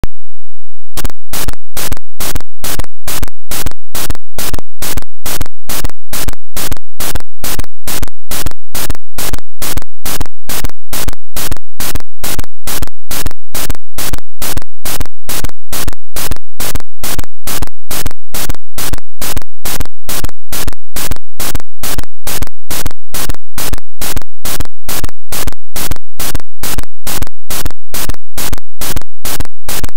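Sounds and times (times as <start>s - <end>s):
harsh pulsing beeper noise: 1.0s - 10.7s.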